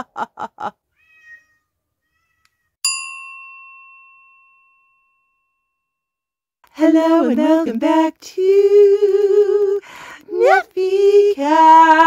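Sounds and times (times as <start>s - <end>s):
cat meowing: 0.9s - 2.7s
bright chime ringing: 2.8s - 5.8s.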